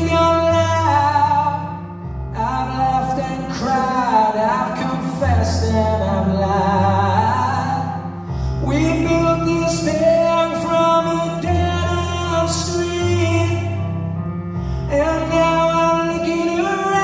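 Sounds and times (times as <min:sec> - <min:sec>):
person singing slow song: 0:00.0 - 0:13.9, 0:14.6 - 0:17.0
grand piano chords: 0:00.0 - 0:17.0.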